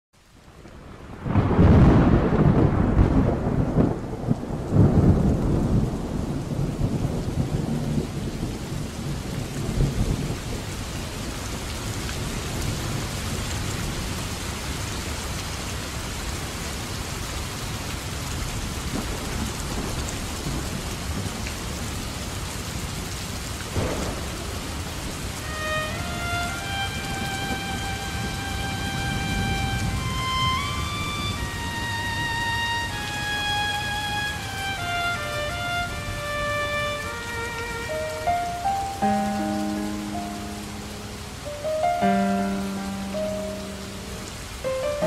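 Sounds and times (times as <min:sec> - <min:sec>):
rain hissing: 0:00.2 - 0:45.0
thunder rumbles: 0:00.5 - 0:14.2, 0:18.6 - 0:38.6.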